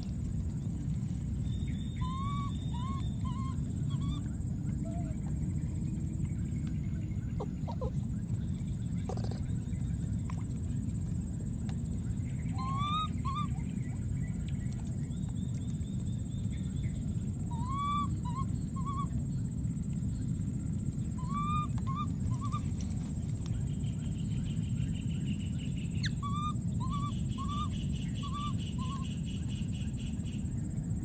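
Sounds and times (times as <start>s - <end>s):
baby monkey whimpering: 1.9s - 5.2s, 7.4s - 8.0s, 12.5s - 13.7s, 17.5s - 19.1s, 21.2s - 22.8s, 26.0s - 29.0s.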